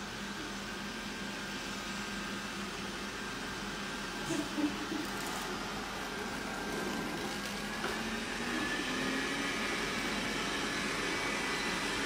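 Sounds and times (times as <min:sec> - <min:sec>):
robot vacuum humming: 0:04.3 - 0:12.0.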